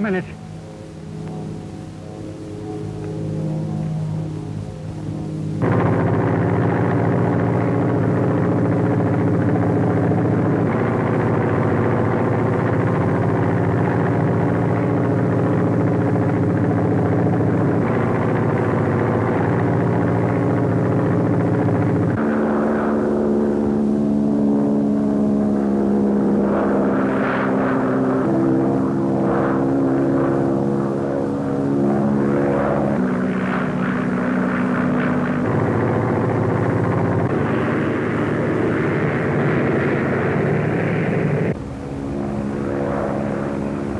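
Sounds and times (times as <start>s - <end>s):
propeller airplane engine droning: 0.0s - 43.9s.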